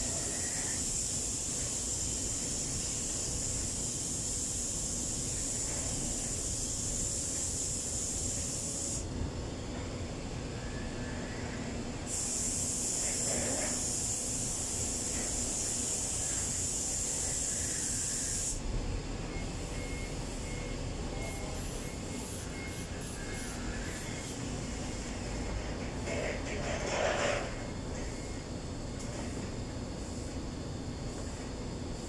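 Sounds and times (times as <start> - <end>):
steady hiss: 0.0 - 9.1, 10.1 - 18.6.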